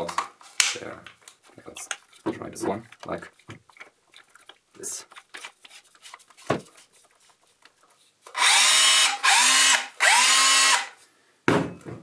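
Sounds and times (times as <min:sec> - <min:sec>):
rotary hammer motor whining: 0:08.4 - 0:10.9.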